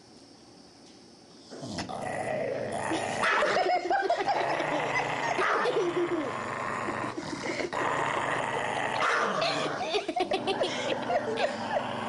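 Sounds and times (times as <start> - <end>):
dog growling: 1.5 - 12.0.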